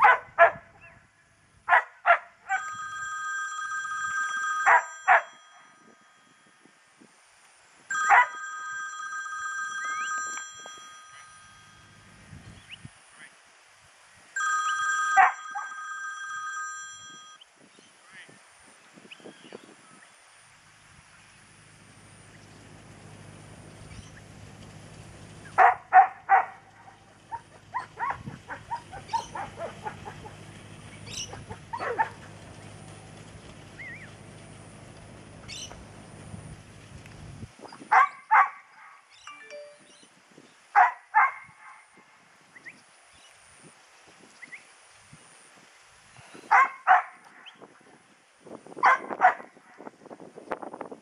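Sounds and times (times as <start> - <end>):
dog barking: 0.0 - 1.0, 1.7 - 2.6, 4.7 - 5.3, 8.1 - 8.4, 15.2 - 15.7, 25.6 - 30.4, 31.3 - 32.2, 37.9 - 39.0, 40.8 - 41.9, 46.5 - 47.2, 48.8 - 49.6
low steady hum: 8.2 - 12.9.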